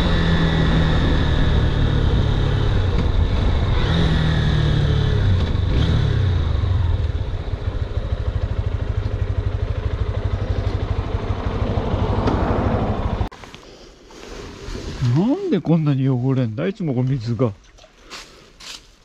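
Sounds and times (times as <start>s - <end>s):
motorcycle engine puttering: 2.7s - 13.2s.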